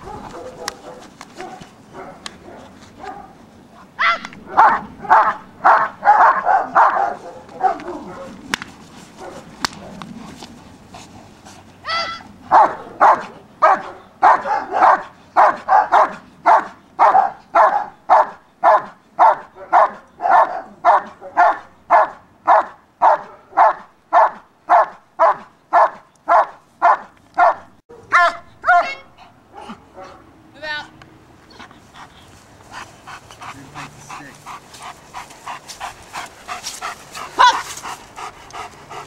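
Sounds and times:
dog barking: 0.0 - 3.4, 4.0 - 8.4, 9.2 - 10.0, 12.0 - 30.2, 37.3 - 37.7
dog yelping: 4.0 - 8.4, 11.8 - 30.2, 37.2 - 37.8.

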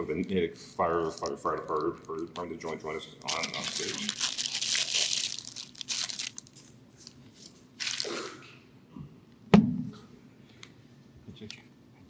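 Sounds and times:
sharp knock with low boom: 9.5 - 10.0.

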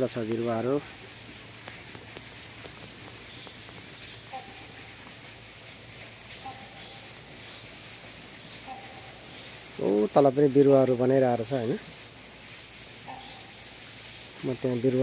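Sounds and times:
faint high insect drone: 0.0 - 15.0
steady hiss: 0.0 - 15.0
short faint calls: 0.2 - 5.3, 6.1 - 10.0, 13.0 - 14.8.

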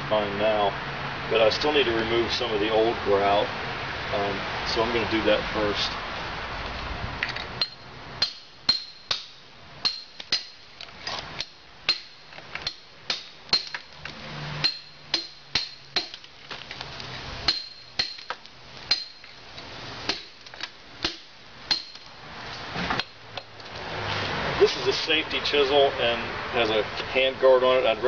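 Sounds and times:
hammer striking steel chisel: 7.6 - 10.6, 11.4 - 13.9, 14.6 - 16.2, 17.5 - 19.4, 21.0 - 22.0.

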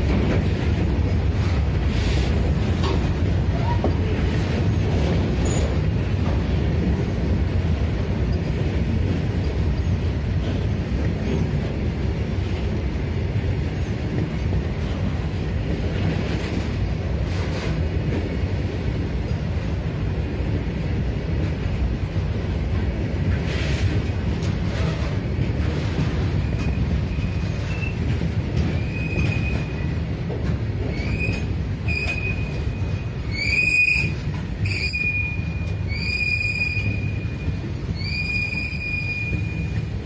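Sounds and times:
train wheels rumbling on rail: 0.0 - 40.0
high wheel squeal: 30.9 - 39.8.

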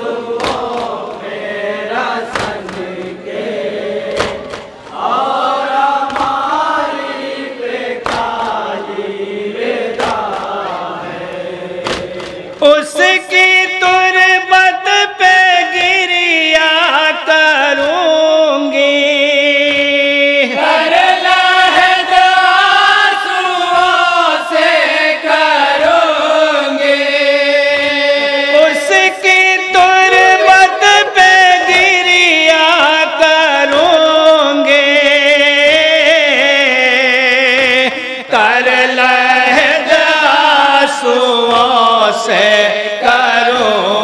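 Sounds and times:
men chanting through loudspeakers: 0.0 - 44.0
hands slapping chests: 0.4 - 1.3, 2.3 - 3.2, 4.1 - 5.0, 6.0 - 6.5, 8.0 - 8.6, 9.9 - 10.8, 11.8 - 12.4.

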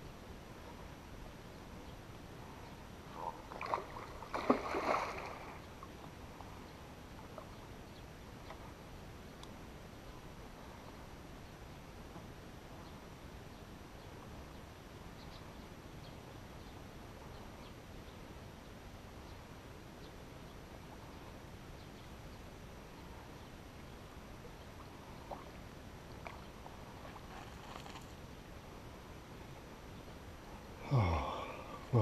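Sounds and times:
outdoor background noise: 0.0 - 32.0
faint ticks: 9.4 - 9.6.

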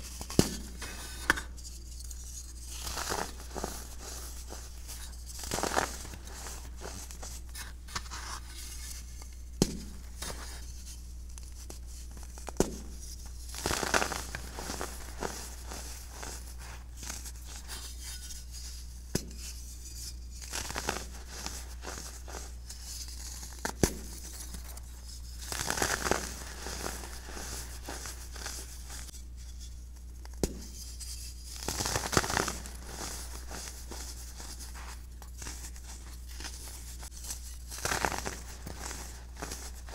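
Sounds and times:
baking soda lumps crunching: 2.8 - 7.4, 13.5 - 17.5, 25.4 - 29.1, 31.6 - 39.9.

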